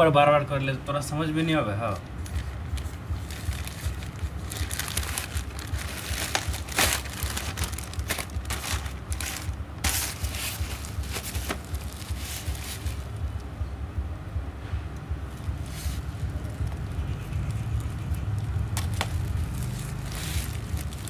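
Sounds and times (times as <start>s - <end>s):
low steady rumble: 0.0s - 21.0s
bubble wrap rustling: 1.8s - 13.4s, 15.3s - 21.0s
plastic bag crinkling and tearing: 1.9s - 13.1s, 17.8s - 21.0s.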